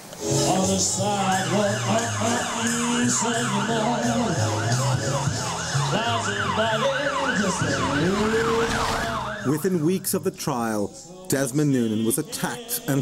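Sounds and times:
siren yelping: 0:01.2 - 0:09.7.

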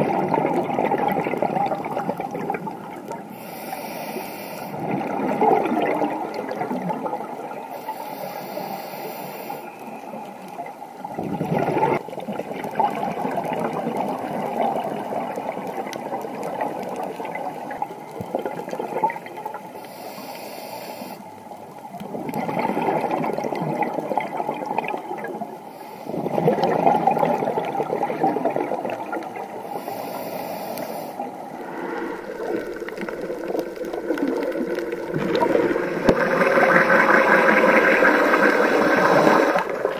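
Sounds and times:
bubbling exhaled air: 0:00.0 - 0:10.2, 0:11.0 - 0:21.2, 0:21.9 - 0:39.9
regulator hissing inhalations: 0:03.3 - 0:04.8, 0:07.7 - 0:09.8, 0:19.8 - 0:21.3, 0:29.6 - 0:32.2.

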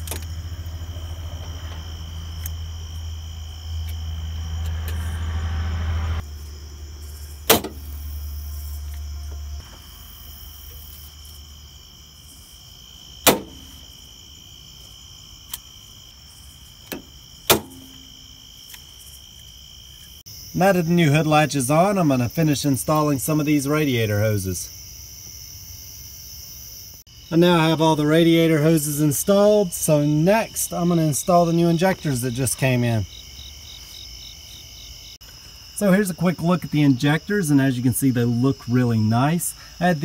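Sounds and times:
low hum: 0:00.0 - 0:11.6.

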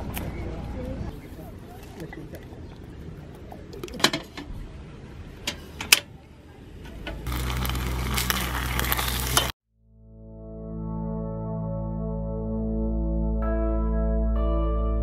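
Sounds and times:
can opener cutting tin: 0:07.3 - 0:09.5
gas stove hissing: 0:07.3 - 0:09.5.

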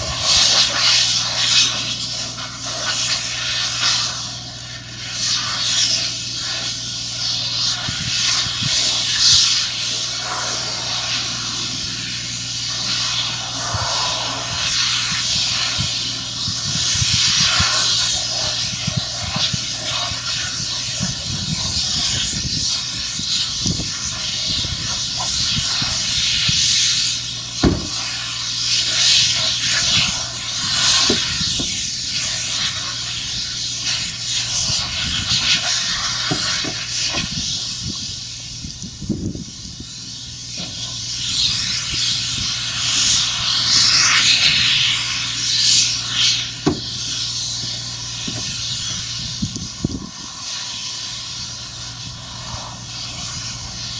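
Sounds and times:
low machine hum: 0:00.0 - 0:53.9
steady hissing: 0:00.0 - 0:53.9.

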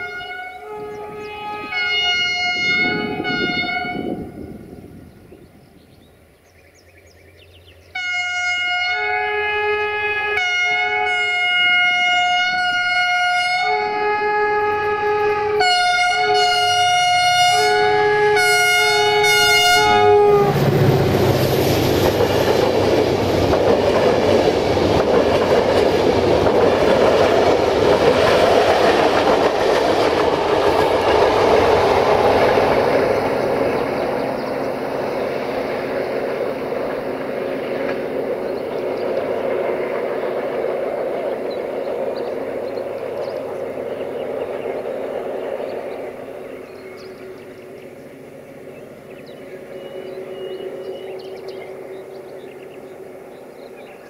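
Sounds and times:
locomotive horn blasts: 0:00.0 - 0:04.6, 0:08.0 - 0:20.8
locomotive engine noise: 0:00.0 - 0:54.0.

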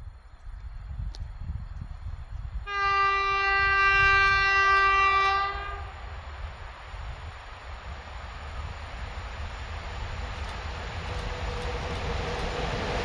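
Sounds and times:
low train rumble: 0:00.0 - 0:13.0
locomotive horn blast: 0:02.6 - 0:06.0.

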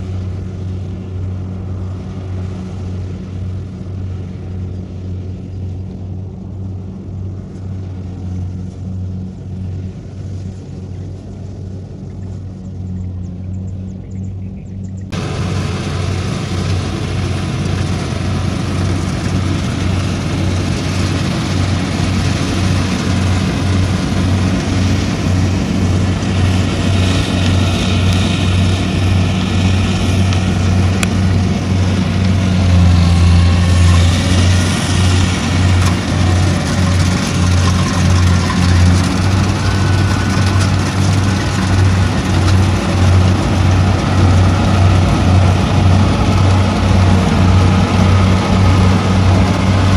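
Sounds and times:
harvester engine humming: 0:00.0 - 0:49.9.

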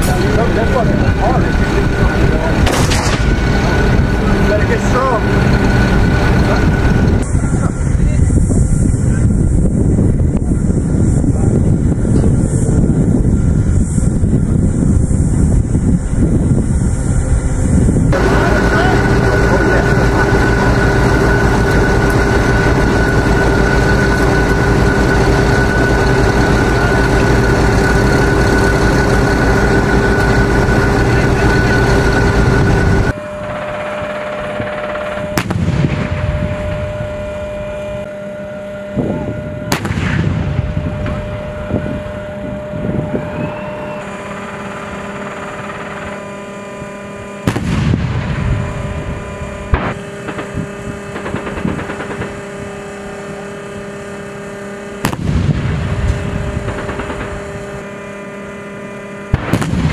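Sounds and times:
armoured vehicle engine whining: 0:00.0 - 0:59.9
tank gun firing: 0:02.6 - 0:03.5, 0:35.4 - 0:36.2, 0:39.7 - 0:40.5, 0:47.5 - 0:48.4, 0:49.7 - 0:52.4, 0:55.0 - 0:56.0, 0:59.3 - 0:59.9.

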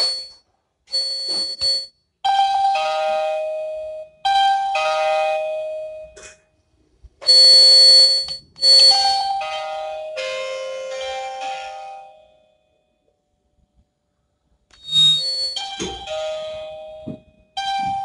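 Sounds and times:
intercom doorbell chime melody: 0:00.0 - 0:06.2, 0:07.2 - 0:12.9, 0:14.8 - 0:18.0.

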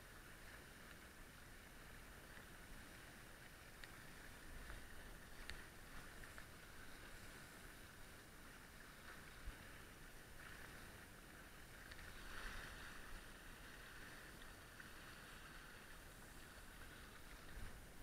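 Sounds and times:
water rushing along boat hull: 0:00.0 - 0:18.0
light ticks: 0:00.6 - 0:01.2, 0:01.9 - 0:06.7, 0:11.7 - 0:12.2.

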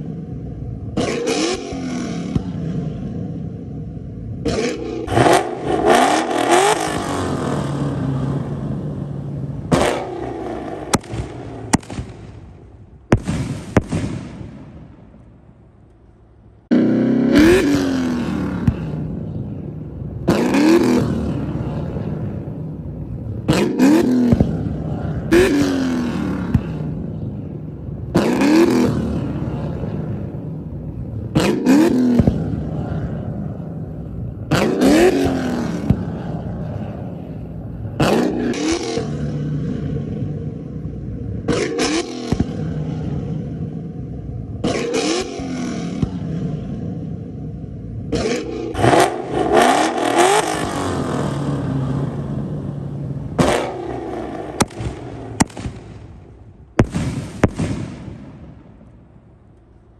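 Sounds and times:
car engine revving: 0:00.0 - 0:59.9
exhaust pops and bangs: 0:10.8 - 0:12.4, 0:13.1 - 0:14.7, 0:23.5 - 0:25.7, 0:31.3 - 0:32.7, 0:54.5 - 0:56.2, 0:56.8 - 0:58.4.

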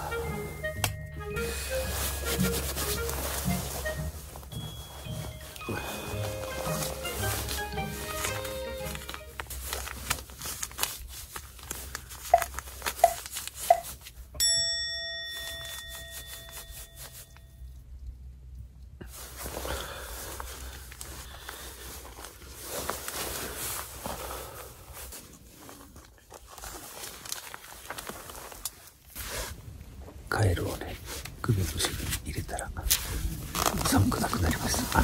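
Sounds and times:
crinkly rustling and tearing: 0:01.8 - 0:14.3, 0:19.0 - 0:30.0, 0:30.8 - 0:35.0
metallic ding: 0:14.4 - 0:17.5.

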